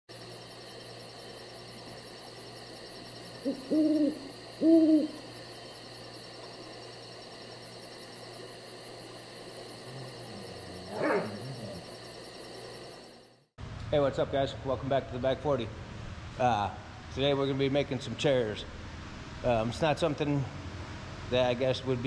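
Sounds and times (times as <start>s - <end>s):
steady background hum: 0.1s - 22.0s
owl hooting: 3.1s - 5.5s, 10.0s - 12.0s.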